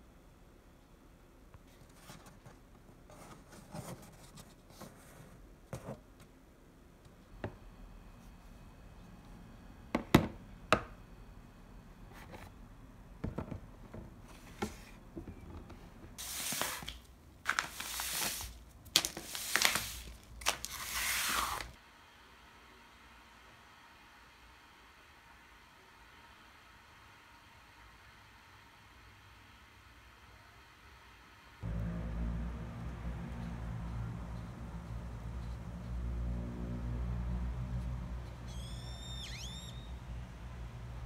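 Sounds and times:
plastic bag scraping on floor: 16.2 - 21.8.

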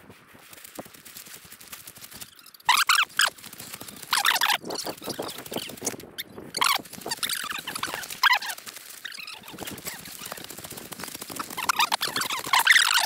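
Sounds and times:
high squeaky scratches: 1.5 - 13.0
carcass dragged through dry leaves: 6.6 - 13.0.

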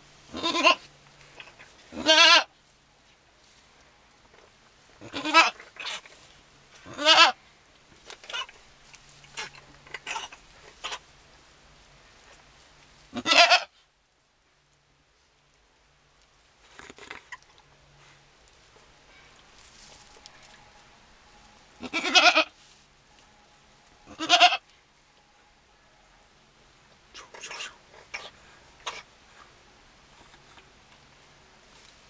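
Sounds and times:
goat bleating: 0.3 - 2.5, 5.0 - 6.0, 6.8 - 7.4, 13.1 - 13.7, 21.8 - 22.6, 24.1 - 24.6.

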